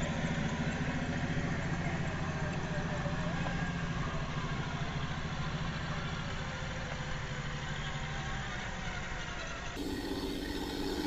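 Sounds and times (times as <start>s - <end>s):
low engine-like idling hum: 0.0s - 11.0s.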